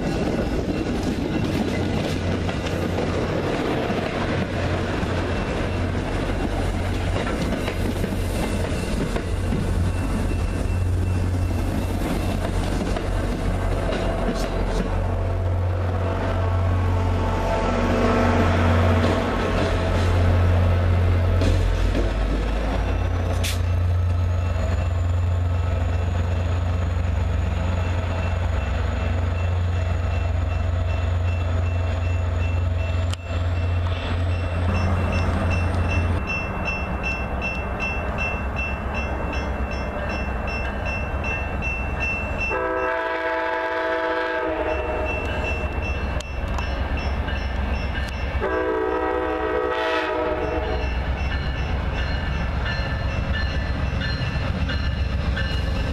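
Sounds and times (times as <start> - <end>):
diesel train rumbling past: 0.0 - 55.9
locomotive horn: 13.7 - 20.4, 42.5 - 45.3, 48.4 - 50.9.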